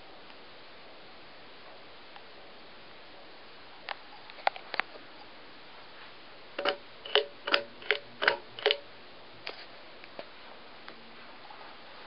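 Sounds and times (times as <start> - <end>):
ceiling fan metallic clicks: 6.6 - 8.9.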